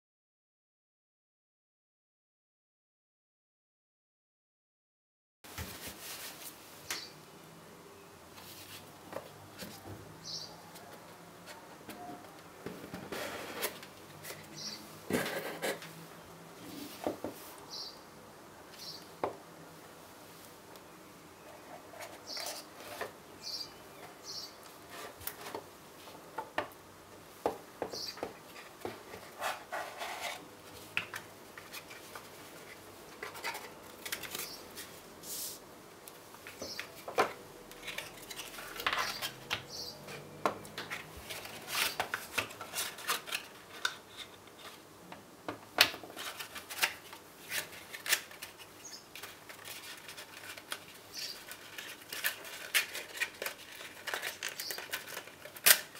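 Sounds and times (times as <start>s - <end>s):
cardboard sliding and scraping: 13.0s - 14.4s, 29.2s - 30.4s.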